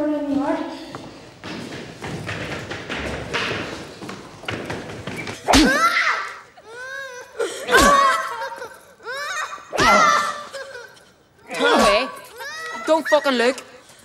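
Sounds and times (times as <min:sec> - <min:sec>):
whip lashes: 0:05.5 - 0:06.0
whimpering cries: 0:05.6 - 0:13.3.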